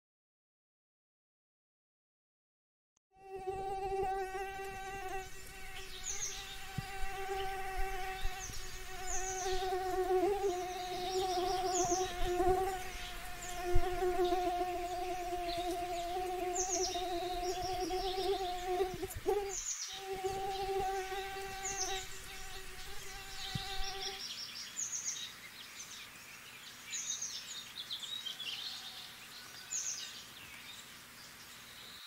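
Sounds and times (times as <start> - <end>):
mosquito whine: 3.2 - 24.2
small birds chirping: 3.6 - 32.0.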